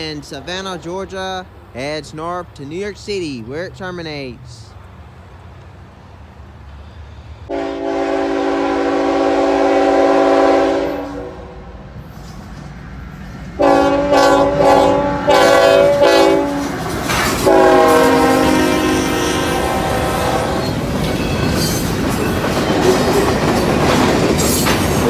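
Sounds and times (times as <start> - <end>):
locomotive air horn blasts: 7.5 - 11.7, 13.6 - 16.7, 17.4 - 20.7.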